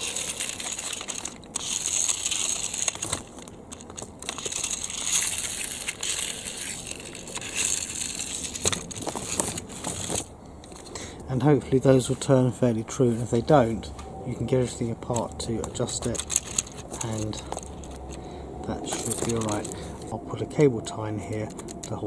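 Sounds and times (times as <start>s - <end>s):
small plastic clicks: 0.0s - 10.8s
plastic toy handling rustling: 0.0s - 11.0s, 14.4s - 22.0s.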